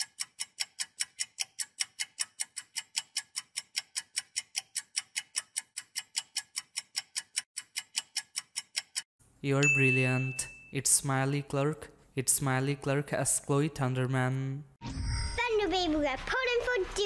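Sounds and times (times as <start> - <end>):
clock-like ticking: 0.0 - 9.1.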